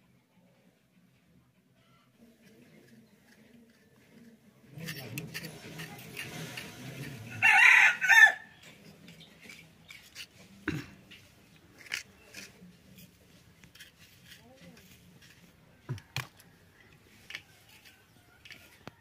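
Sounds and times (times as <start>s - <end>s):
blade scraping skin: 2.4s - 7.9s, 8.7s - 16.5s
rooster crowing: 7.3s - 8.5s.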